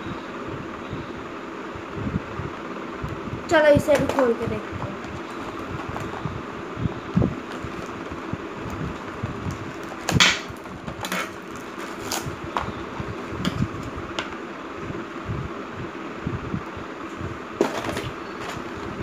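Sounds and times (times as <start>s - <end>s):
packaging knocks and rustles: 4.9s - 6.2s, 7.4s - 12.8s, 17.6s - 18.8s
knife cutting packaging: 9.7s - 12.7s.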